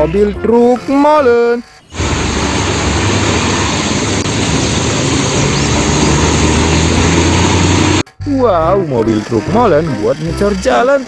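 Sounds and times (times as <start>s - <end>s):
diesel truck engine humming: 1.7s - 8.3s.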